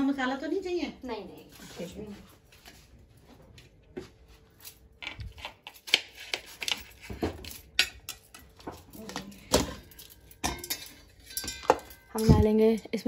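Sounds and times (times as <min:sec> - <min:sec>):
kitchen knocks and clinks: 0:06.7 - 0:13.0.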